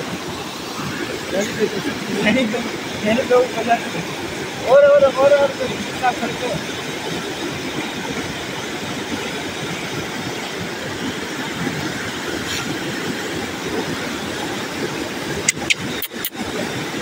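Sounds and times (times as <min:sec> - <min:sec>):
river rushing over boulders: 0:00.0 - 0:17.0
sharp clicks: 0:15.5 - 0:16.3.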